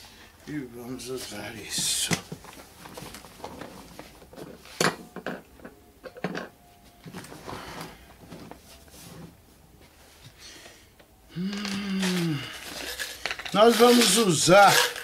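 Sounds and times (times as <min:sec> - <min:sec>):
rubbing and shuffling: 0:06.8 - 0:10.5.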